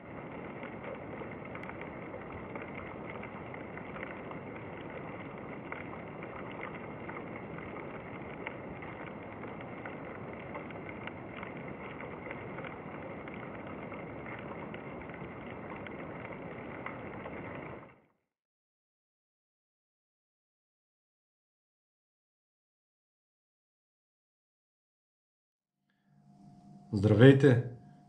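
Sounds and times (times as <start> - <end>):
faint clicks: 0.2 - 17.9.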